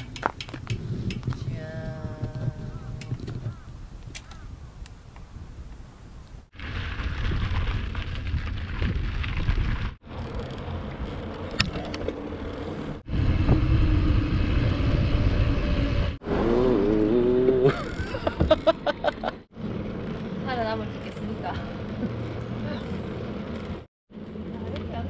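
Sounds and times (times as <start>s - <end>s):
wind rumbling on microphone: 0.0s - 12.1s, 12.9s - 16.6s
sharp clicks: 4.0s - 5.2s.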